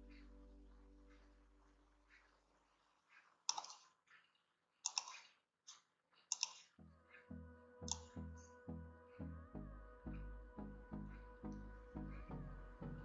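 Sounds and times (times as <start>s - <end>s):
computer mouse clicking: 3.5s - 3.9s, 4.8s - 6.7s.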